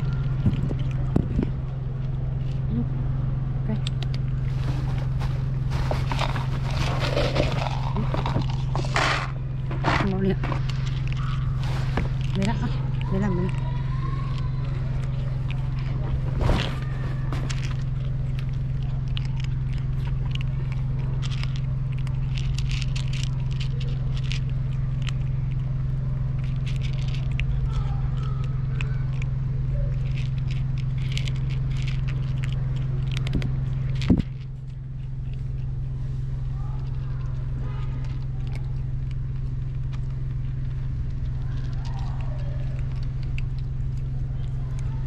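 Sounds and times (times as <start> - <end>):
kittens crunching dry kibble: 0.0 - 45.0
steady low hum: 0.0 - 45.0.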